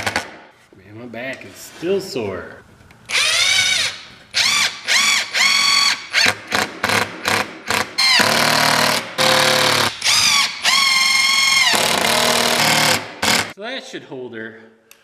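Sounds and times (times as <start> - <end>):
power drill whining: 3.1 - 6.0, 8.0 - 13.5.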